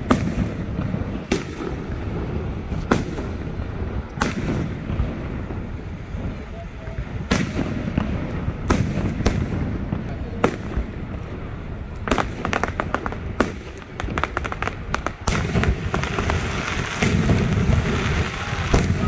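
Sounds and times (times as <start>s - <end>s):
firework shells bursting: 7.2s - 19.0s.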